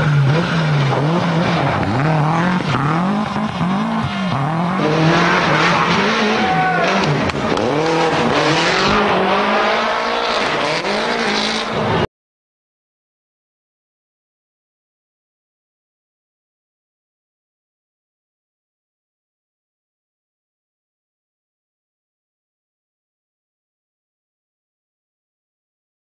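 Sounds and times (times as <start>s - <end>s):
car engine revving: 0.0s - 12.1s.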